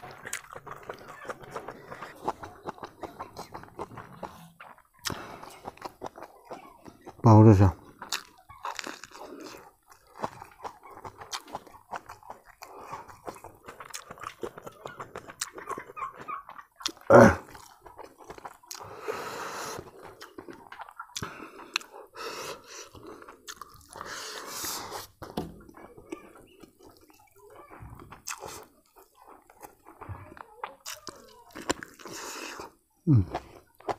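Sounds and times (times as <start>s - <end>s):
man chewing and lip-smacking: 0.0s - 33.9s
wet mouth clicks: 8.0s - 27.2s, 28.1s - 30.0s.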